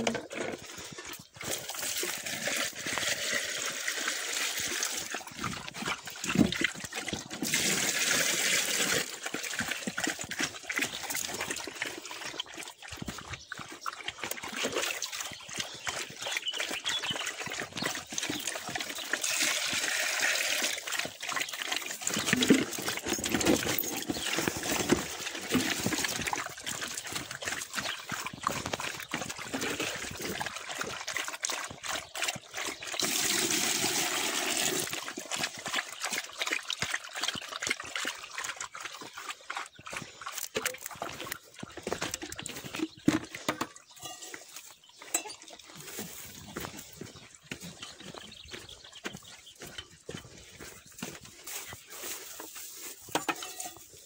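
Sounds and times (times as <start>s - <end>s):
footsteps crunching on stony rubble: 0.0s - 3.1s, 9.6s - 14.5s, 15.4s - 19.2s, 21.9s - 31.0s, 38.9s - 54.0s.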